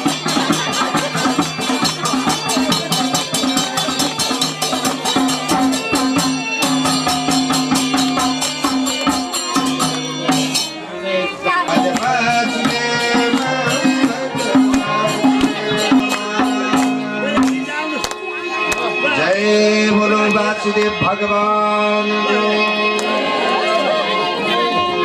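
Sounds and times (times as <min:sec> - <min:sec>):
hand-drum beat: 0:00.0 - 0:21.3
jingling percussion: 0:00.0 - 0:23.4
people singing: 0:08.4 - 0:17.8, 0:19.1 - 0:25.0.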